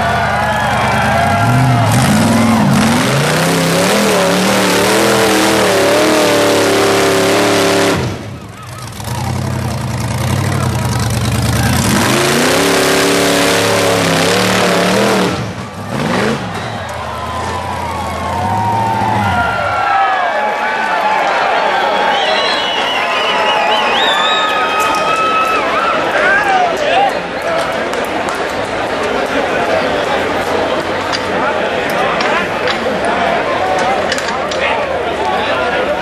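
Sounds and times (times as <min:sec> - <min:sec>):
buggy engine revving hard: 0:00.0 - 0:19.7.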